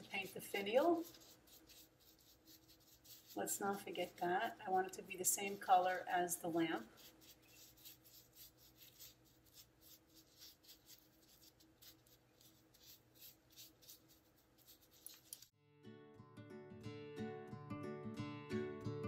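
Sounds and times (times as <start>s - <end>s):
paintbrush strokes on metal: 0.0s - 15.5s
acoustic guitar music: 15.6s - 19.0s.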